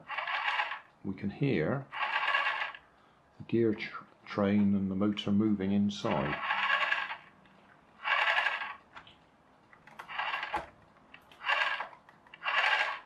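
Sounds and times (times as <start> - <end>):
plastic gears whirring: 0.0 - 0.9, 1.9 - 2.9, 6.0 - 9.2, 9.8 - 13.0.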